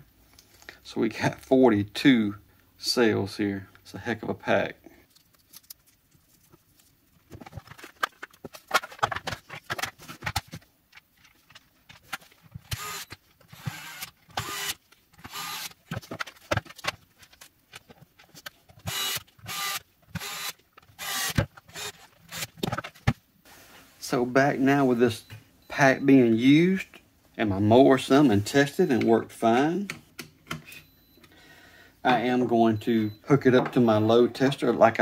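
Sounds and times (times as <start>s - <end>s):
plastic parts rattling and clicking: 7.2s - 23.2s
cordless screwdriver whirring: 12.7s - 15.8s, 18.9s - 22.5s.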